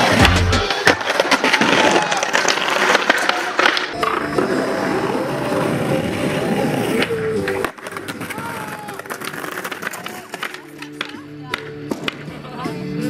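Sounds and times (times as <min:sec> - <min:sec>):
music: 0:00.0 - 0:01.8, 0:03.6 - 0:13.0
skateboard clacks: 0:00.0 - 0:04.6, 0:06.1 - 0:12.5
skateboard wheels rolling on stone: 0:00.0 - 0:12.4.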